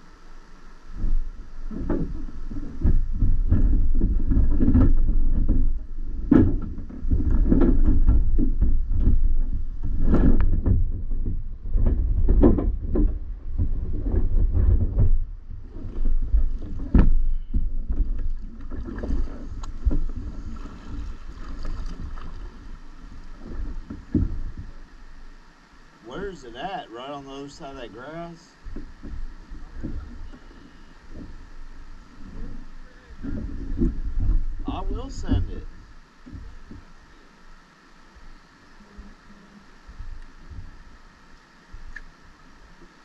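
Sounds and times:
water splashing against boat hull: 0.9 - 25.9.

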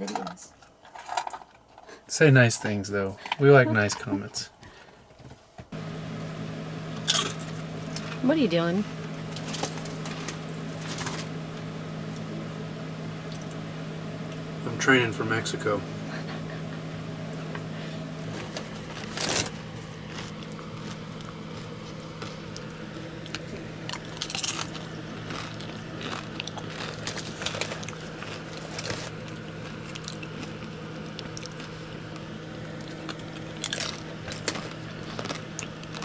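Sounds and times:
steady low hum: 0.0 - 36.0
tortilla chips crunching: 18.2 - 36.0.

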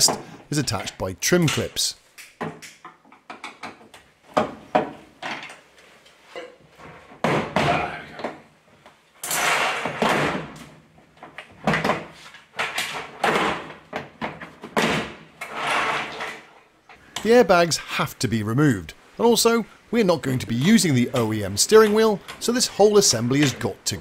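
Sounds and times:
plastic scraping and rattling: 9.2 - 17.0.

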